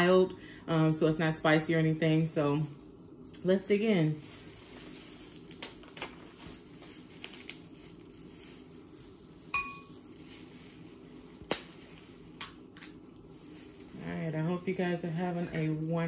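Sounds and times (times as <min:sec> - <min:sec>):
low room hum: 0:00.0 - 0:16.0
crab shells cracking: 0:05.4 - 0:06.2, 0:11.4 - 0:13.9.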